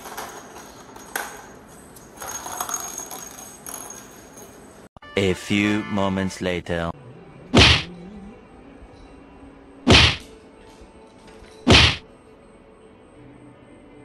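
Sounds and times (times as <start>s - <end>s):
loud whacks: 7.6s - 7.9s, 9.9s - 10.3s, 11.7s - 12.0s.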